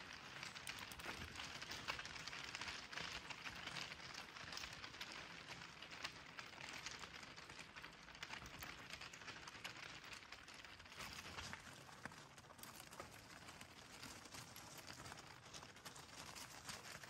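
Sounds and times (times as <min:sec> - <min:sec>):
bicycle tyres crackling on path: 0:00.0 - 0:14.4.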